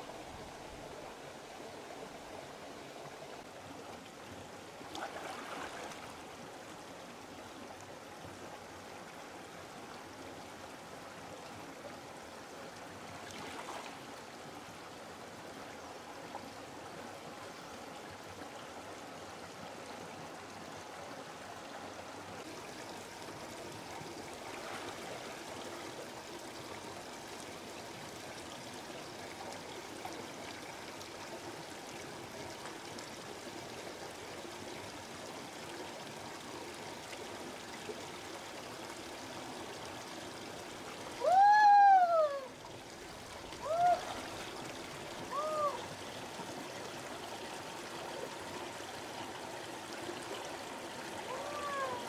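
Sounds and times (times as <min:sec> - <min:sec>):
shallow river flowing: 0:00.0 - 0:52.0
water swishing from wading: 0:04.7 - 0:06.6, 0:13.0 - 0:14.3, 0:23.8 - 0:26.1, 0:42.5 - 0:47.1.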